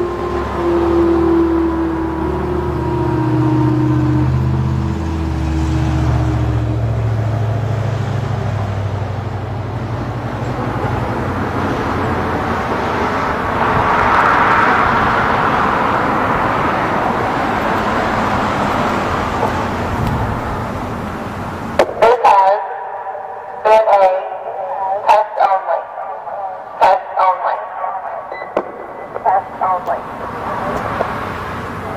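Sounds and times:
car passing by: 0.0 - 21.8, 28.6 - 31.9
vehicle engine hum: 0.0 - 31.9.

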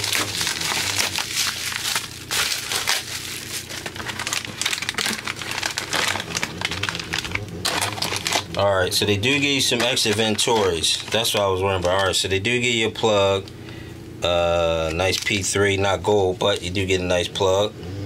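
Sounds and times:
bubble wrap crinkling: 0.0 - 12.4, 14.8 - 15.6.

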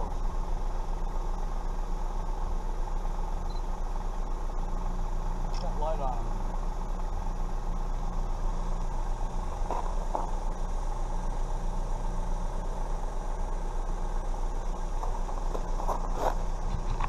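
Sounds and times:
constant hiss: 0.0 - 17.0
vehicle engine idling: 0.0 - 17.0.

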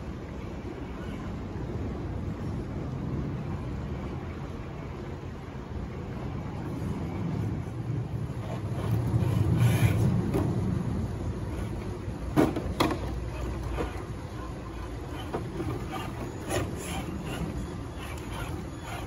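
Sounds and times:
rc car knocking on rocks: 12.3 - 14.0.

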